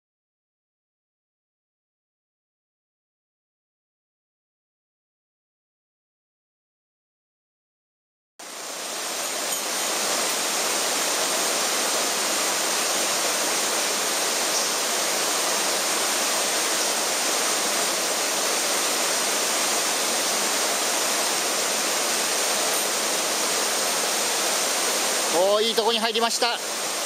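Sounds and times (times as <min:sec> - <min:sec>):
mountain stream rushing: 0:08.4 - 0:27.0.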